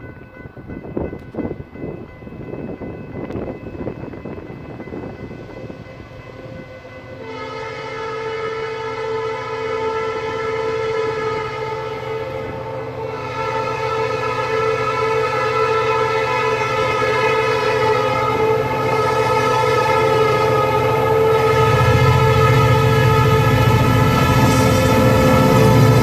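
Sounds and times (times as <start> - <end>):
locomotive air horn blast: 7.2 - 26.0
locomotive engine rumble: 16.3 - 26.0.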